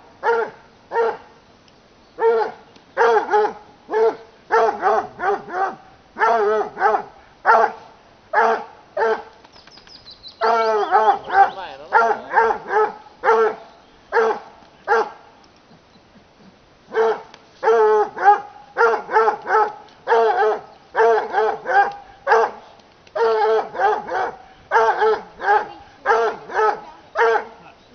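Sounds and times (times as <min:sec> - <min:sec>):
hounds barking: 0:00.2 - 0:01.3, 0:02.2 - 0:09.3, 0:10.4 - 0:15.2, 0:16.9 - 0:22.6, 0:23.2 - 0:27.9.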